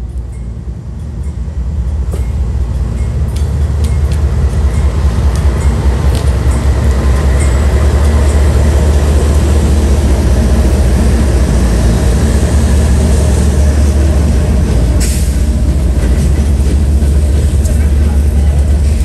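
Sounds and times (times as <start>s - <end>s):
locomotive engine drone: 0.0s - 19.0s
train rumbling over rails: 0.0s - 19.0s.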